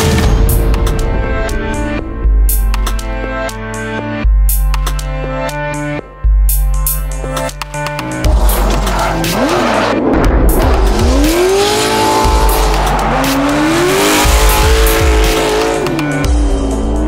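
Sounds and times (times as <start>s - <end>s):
electronic music with heavy bass: 0.0s - 17.0s
tires squealing: 8.1s - 16.2s
engine revving hard: 8.2s - 16.2s.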